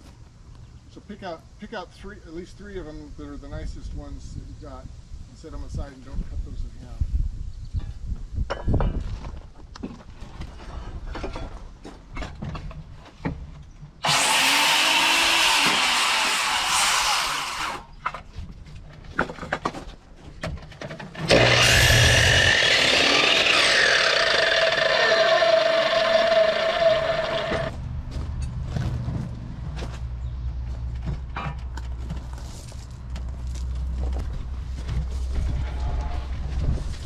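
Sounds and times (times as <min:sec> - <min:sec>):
miter saw cutting wood: 0:14.0 - 0:17.9, 0:21.2 - 0:27.7.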